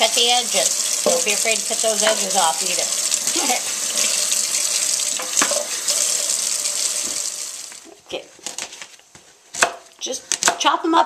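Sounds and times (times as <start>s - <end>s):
faucet water splashing: 0.0s - 7.9s.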